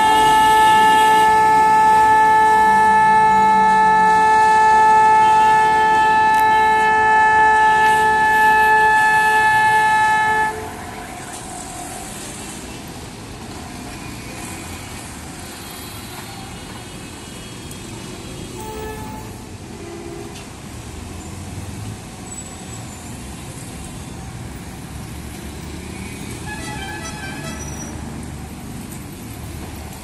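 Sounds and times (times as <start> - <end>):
vehicle air horn blast: 0.0 - 11.3, 18.6 - 20.4, 26.4 - 27.7
engines and traffic: 0.0 - 30.0.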